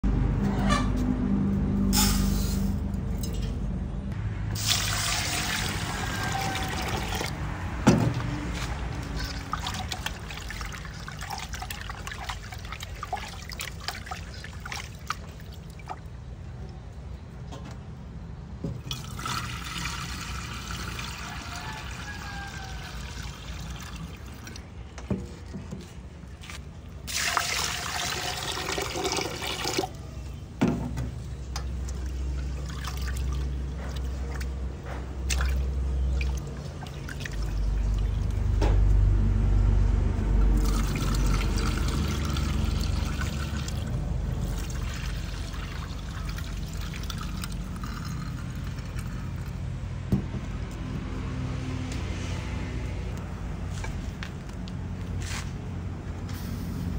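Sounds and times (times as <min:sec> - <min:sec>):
water pouring into drain: 0:04.5 - 0:07.4, 0:08.4 - 0:16.0, 0:18.8 - 0:24.7, 0:27.0 - 0:30.0, 0:31.9 - 0:34.2, 0:35.3 - 0:38.5, 0:40.4 - 0:49.6.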